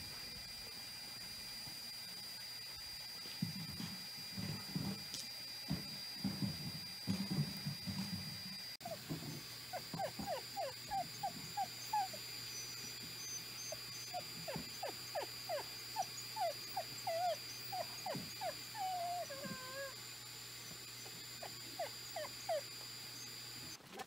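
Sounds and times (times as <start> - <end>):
dog whining: 8.8 - 20.0, 21.4 - 23.3.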